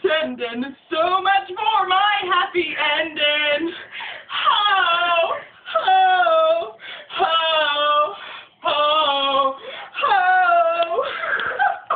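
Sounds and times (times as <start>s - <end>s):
person breathing: 3.7s - 4.4s, 6.8s - 7.1s, 8.2s - 8.6s, 9.6s - 10.0s.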